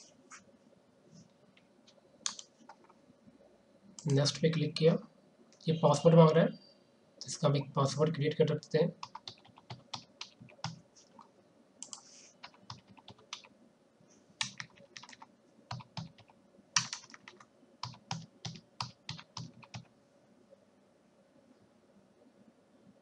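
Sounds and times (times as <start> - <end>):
faint steady hum: 0.0 - 23.0
keyboard typing clicks: 2.2 - 3.0, 9.0 - 13.5, 14.4 - 19.9.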